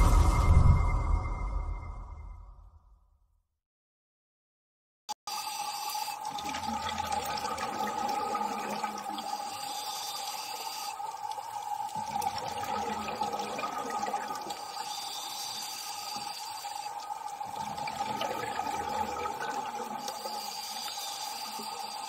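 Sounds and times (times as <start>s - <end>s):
underwater rush: 0.0s - 1.9s.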